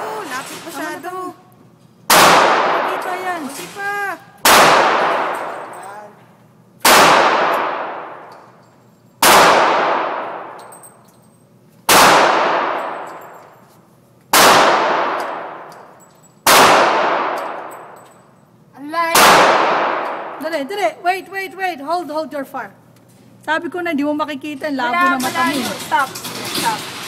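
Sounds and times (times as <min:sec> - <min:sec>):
revolver shots echoing indoors: 0:02.0 - 0:03.8, 0:04.4 - 0:06.2, 0:06.8 - 0:13.6, 0:14.3 - 0:18.4, 0:19.1 - 0:20.5.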